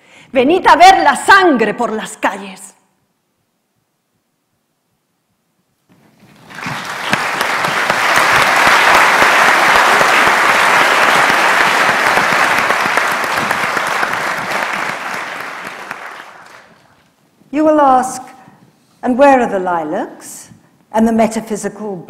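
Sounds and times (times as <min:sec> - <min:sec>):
large crowd clapping: 0:06.4 - 0:17.0.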